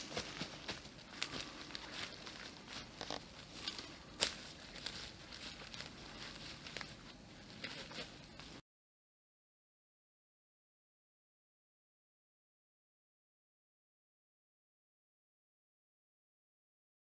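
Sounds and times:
footsteps through leaf litter: 0:00.0 - 0:08.6.

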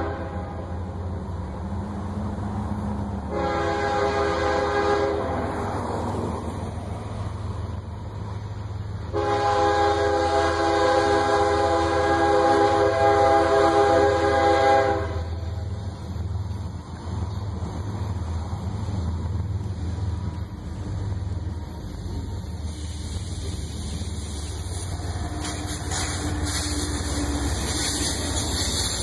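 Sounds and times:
locomotive air horn blasts: 0:00.0 - 0:00.9, 0:03.2 - 0:05.6, 0:09.1 - 0:15.7, 0:24.3 - 0:29.0.

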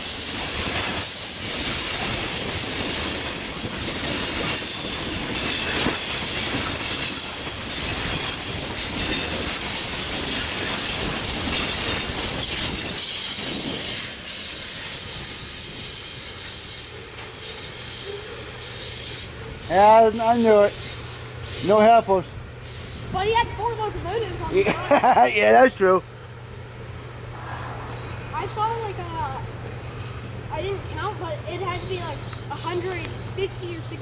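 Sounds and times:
train wheels rumbling on rails: 0:00.0 - 0:24.6, 0:26.8 - 0:34.0
high wheel squeal: 0:02.6 - 0:21.9.

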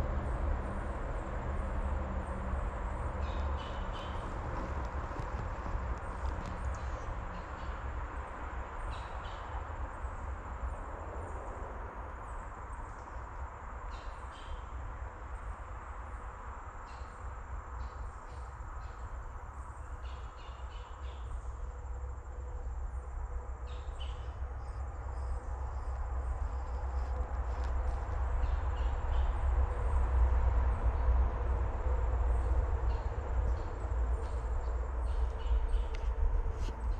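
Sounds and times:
wind rumble on microphone: 0:00.0 - 0:36.9
small ticks: 0:04.0 - 0:07.5.

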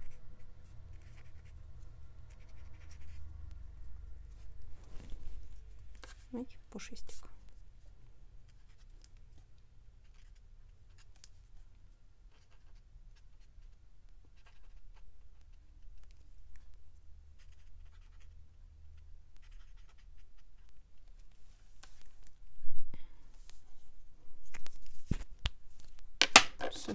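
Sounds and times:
marker tapping and scratching on paper: 0:00.0 - 0:01.6, 0:02.2 - 0:03.6, 0:10.0 - 0:11.2, 0:12.3 - 0:16.7, 0:17.4 - 0:18.4, 0:19.0 - 0:21.3, 0:26.2 - 0:26.9.

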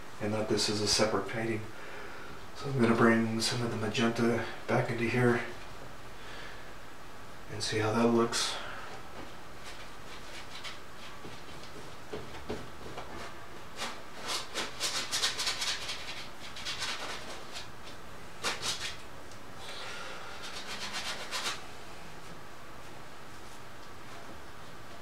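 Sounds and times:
brush scrubbing on canvas: 0:13.2 - 0:17.7, 0:20.4 - 0:21.6.

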